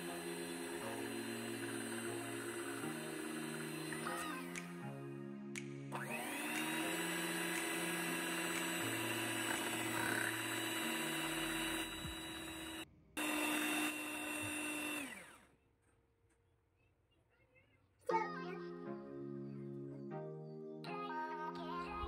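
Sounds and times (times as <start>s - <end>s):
electric hand mixer whining: 0.0s - 5.0s, 5.9s - 15.5s.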